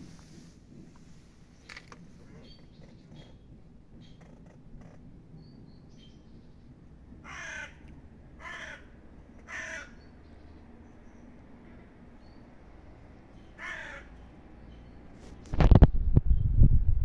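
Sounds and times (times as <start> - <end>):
crow cawing: 7.2 - 10.0, 13.6 - 14.2.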